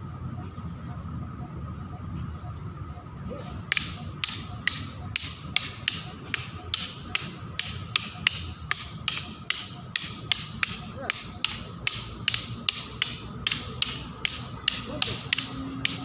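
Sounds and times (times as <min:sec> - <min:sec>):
wooden sticks clacking: 0:03.4 - 0:16.0.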